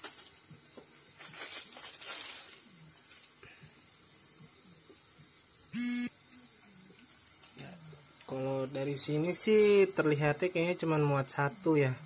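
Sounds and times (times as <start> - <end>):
plastic packet rustling and tearing: 0.0 - 0.5, 1.1 - 3.4
water boiling: 0.0 - 1.7, 2.4 - 12.0
gas stove hiss: 0.0 - 12.0
loud steady tone: 5.7 - 6.6.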